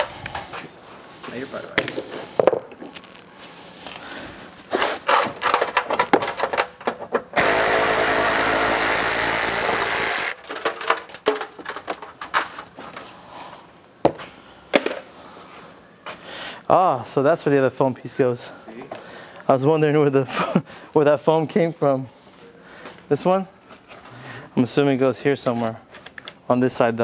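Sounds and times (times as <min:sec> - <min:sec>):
tools and small parts clattering: 0:04.8 - 0:07.4, 0:09.8 - 0:13.1
power tool running: 0:07.4 - 0:10.7.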